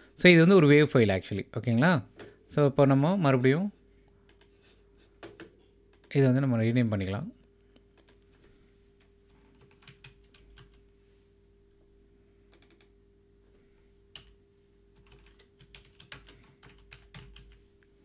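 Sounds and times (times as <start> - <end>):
faint steady hum: 0.0 - 18.0
typing on computer keyboard: 8.0 - 8.2, 9.5 - 10.8, 12.5 - 13.0, 15.0 - 17.6.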